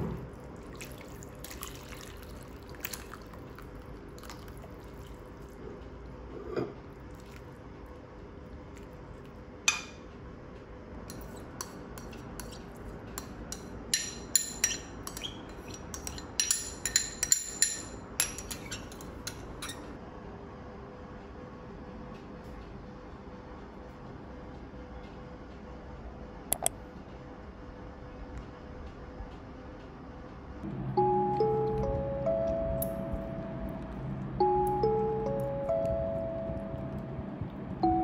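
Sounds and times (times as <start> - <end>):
liquid splashing into a bowl: 0.6 - 5.5
metal spoon clinking on bowl: 13.2 - 19.5.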